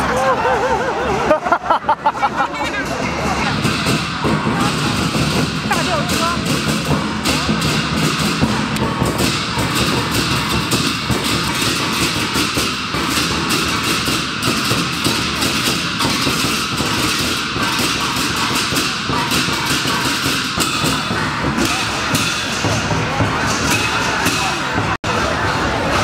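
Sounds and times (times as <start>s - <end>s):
big drum beating: 1.4s - 26.0s
hand cymbals clashing: 2.9s - 25.0s.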